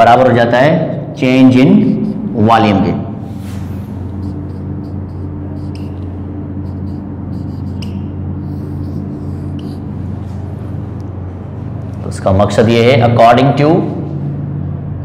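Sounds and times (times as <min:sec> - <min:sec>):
low hum: 0:00.0 - 0:15.0
marker squeaking on whiteboard: 0:01.8 - 0:02.4, 0:04.0 - 0:10.5.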